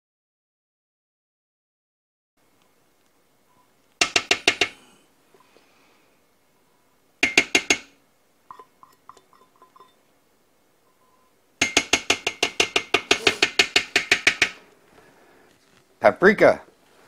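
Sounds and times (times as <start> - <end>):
light ringing taps: 8.5 - 10.0
metal cup clinking on steel pot: 8.5 - 10.0.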